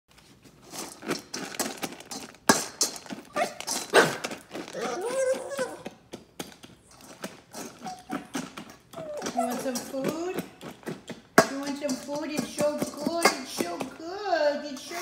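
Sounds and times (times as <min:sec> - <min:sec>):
dog nails clicking on tile: 0:01.3 - 0:14.0
dog whining: 0:03.3 - 0:06.0, 0:06.8 - 0:10.0.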